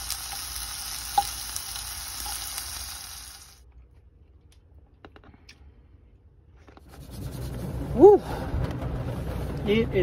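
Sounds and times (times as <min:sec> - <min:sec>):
food sizzling in frying pan: 0:00.0 - 0:03.6.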